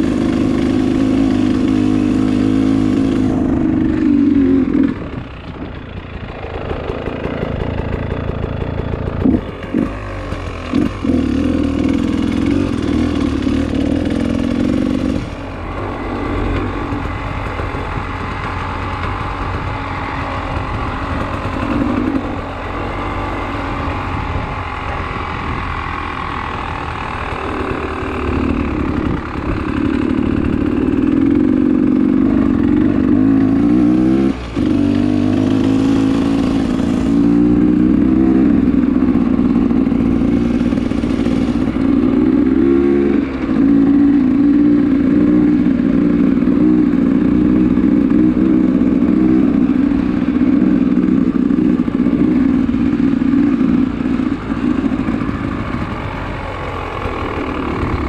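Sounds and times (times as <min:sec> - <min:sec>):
dirt bike engine running: 0:00.0 - 0:58.0
wind and tyre noise: 0:00.0 - 0:58.0.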